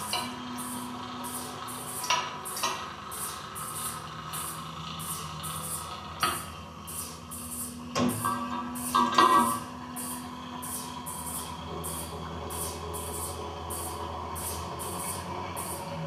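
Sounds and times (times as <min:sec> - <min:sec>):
rhythmic hissing pulses: 0:00.0 - 0:16.0
steady low hum: 0:00.0 - 0:16.0.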